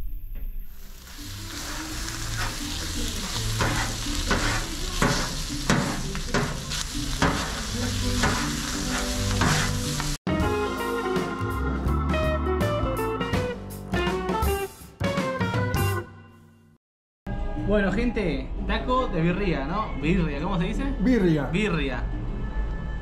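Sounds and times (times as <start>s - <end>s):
meat sizzling on a griddle: 0.8s - 10.2s.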